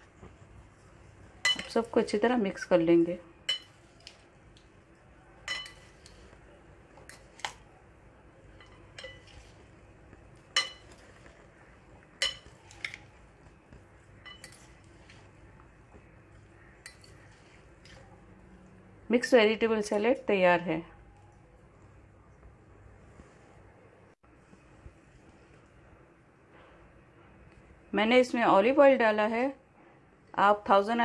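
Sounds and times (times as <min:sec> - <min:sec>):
salad servers clinking against bowl: 0:01.4 - 0:01.9, 0:05.4 - 0:06.2, 0:08.6 - 0:09.6, 0:10.5 - 0:11.3, 0:12.2 - 0:13.0, 0:14.2 - 0:14.8.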